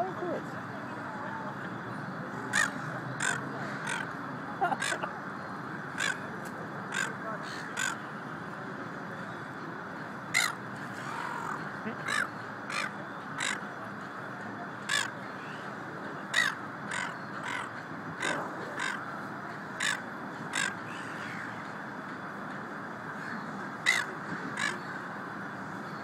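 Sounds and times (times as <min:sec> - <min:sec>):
gulls calling harshly: 0:02.3 - 0:08.3, 0:10.2 - 0:21.7, 0:23.1 - 0:26.0.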